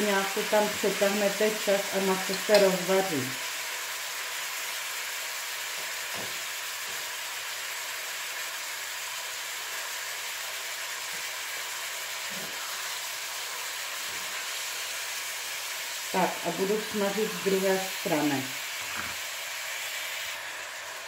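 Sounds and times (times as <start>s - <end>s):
beef sizzling in a frying pan: 0.0s - 21.0s.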